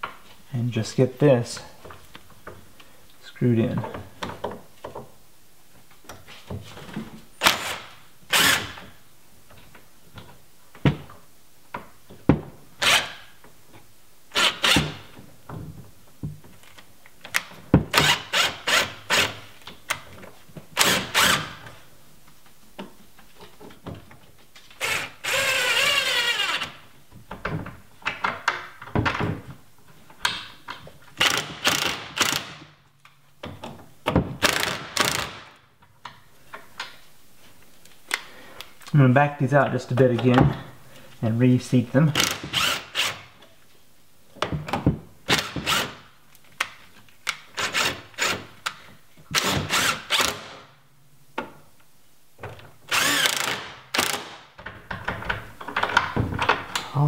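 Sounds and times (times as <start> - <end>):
cordless driver driving screws: 14.3 - 15.0, 20.8 - 21.6, 24.8 - 26.8, 31.2 - 32.6, 34.4 - 35.5, 42.2 - 43.2, 49.3 - 50.6, 52.9 - 54.4.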